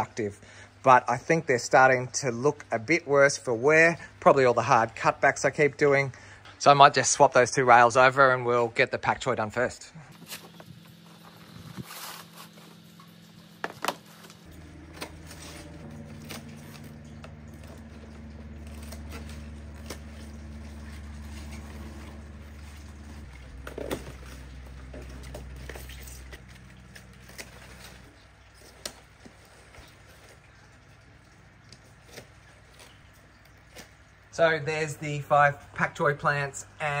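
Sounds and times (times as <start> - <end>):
low mechanical hum: 0.0 - 37.0
leaves rustling: 10.1 - 35.3.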